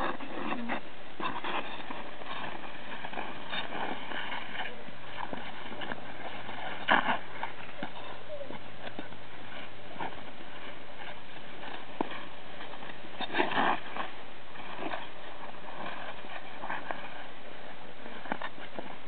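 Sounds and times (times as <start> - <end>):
ice skates scraping on ice: 0.0 - 19.0.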